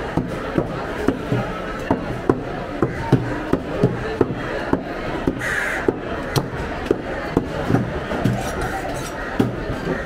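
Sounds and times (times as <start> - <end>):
crow cawing: 5.4 - 6.4.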